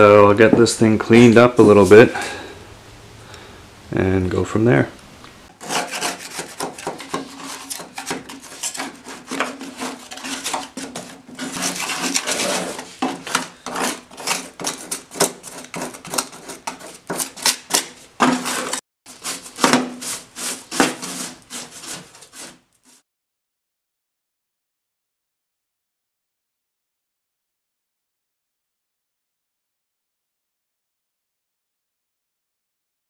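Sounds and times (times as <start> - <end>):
scrubbing on metal: 5.5 - 23.0.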